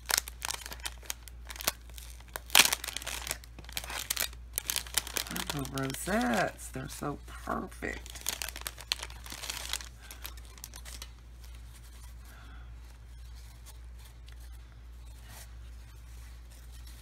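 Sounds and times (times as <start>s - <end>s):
cellophane bag crinkling: 0.0s - 11.8s
paper rustling: 0.0s - 12.2s
steady low hum: 0.0s - 17.0s.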